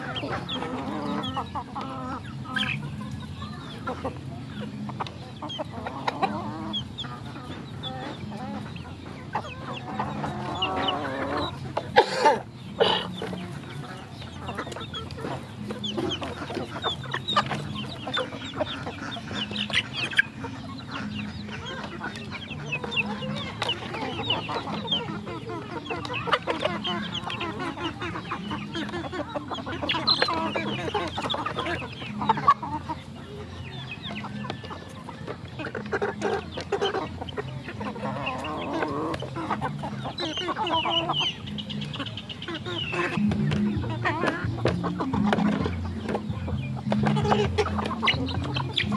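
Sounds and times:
chickens clucking: 0.0s - 48.9s
chickens pecking clicks: 34.1s - 41.8s, 42.7s - 48.9s.

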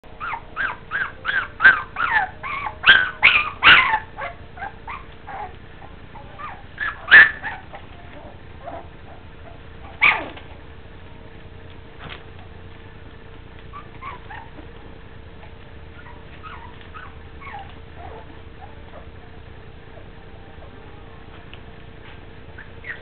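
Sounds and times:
puppies yipping and whimpering: 0.2s - 10.5s, 13.6s - 15.0s, 15.9s - 20.8s, 22.5s - 23.0s.

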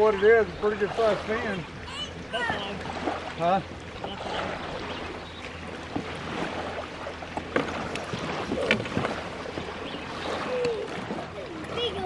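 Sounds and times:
small waves lapping at shore: 0.0s - 12.0s
wind: 0.0s - 12.0s
fishing gear knocking in kayak: 7.3s - 9.7s.

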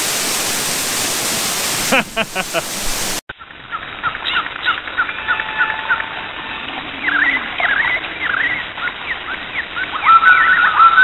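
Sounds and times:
falling water rushing: 0.0s - 11.0s
songbirds chirping and whistling: 7.0s - 11.0s.

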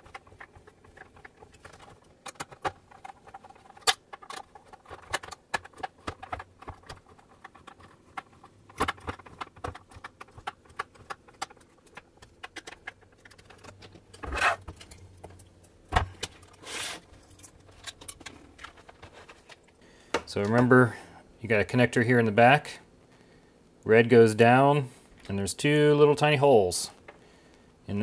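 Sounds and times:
short scrape: 16.6s - 17.1s.

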